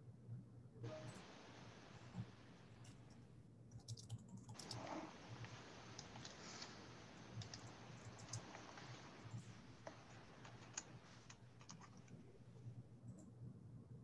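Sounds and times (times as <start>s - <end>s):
computer keyboard typing clicks: 3.7s - 4.9s, 7.3s - 12.2s.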